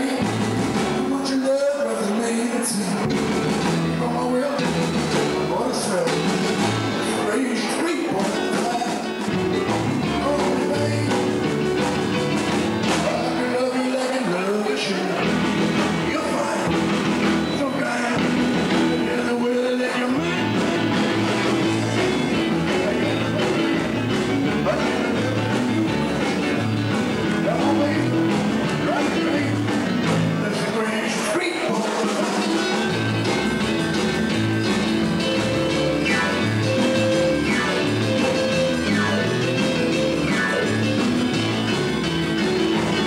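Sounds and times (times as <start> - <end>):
person singing: 0.0 - 12.0, 12.7 - 43.0
electric bass: 0.0 - 43.0
electric guitar: 0.0 - 43.0.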